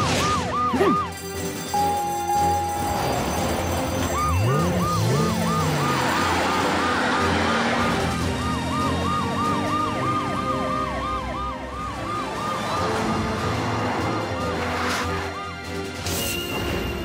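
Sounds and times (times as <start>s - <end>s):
fast yelp siren: 0.0s - 1.1s, 1.8s - 13.5s
slow sweeping siren: 0.0s - 16.1s.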